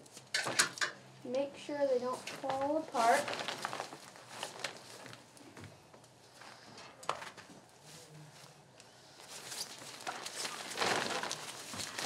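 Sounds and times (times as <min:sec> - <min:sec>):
tent fabric rustling: 0:02.4 - 0:05.3, 0:09.2 - 0:12.0.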